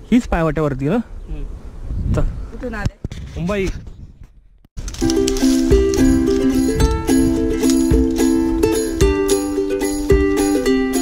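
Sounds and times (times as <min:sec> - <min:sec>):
low thumping beat: 0:05.0 - 0:11.0
plucked-string chords: 0:05.0 - 0:11.0.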